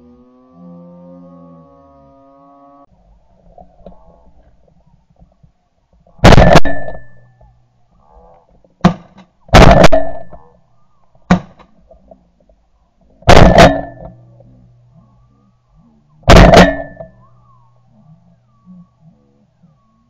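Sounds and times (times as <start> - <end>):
shotgun blasts: 6.2 - 7.2, 8.8 - 10.4, 13.2 - 14.0, 16.2 - 17.2.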